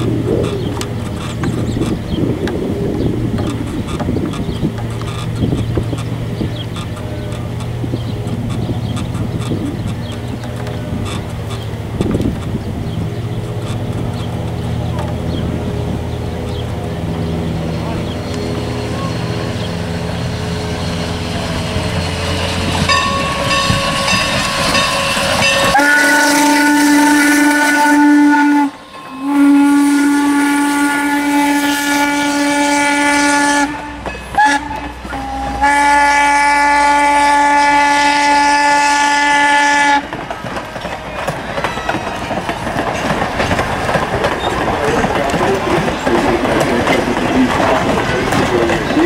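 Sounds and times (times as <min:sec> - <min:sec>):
train coaches clattering on rails: 0:00.0 - 0:49.0
steam whistle blowing: 0:22.9 - 0:40.0.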